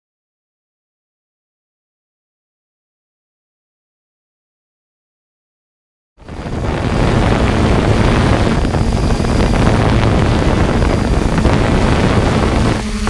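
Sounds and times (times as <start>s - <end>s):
drone propellers whirring: 6.2s - 13.0s
wind buffeting microphone: 6.2s - 13.0s.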